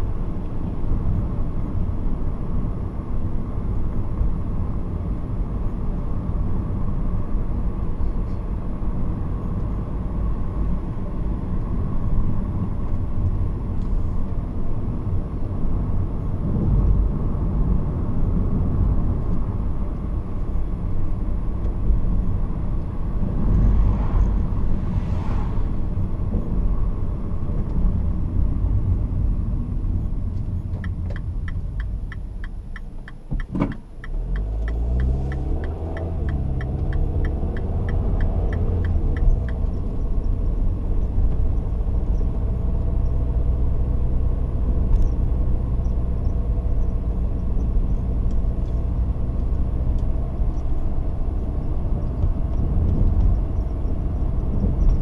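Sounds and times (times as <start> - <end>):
car engine and road rumble: 0.0 - 55.0
turn signal ticking: 29.8 - 43.5, 44.8 - 55.0.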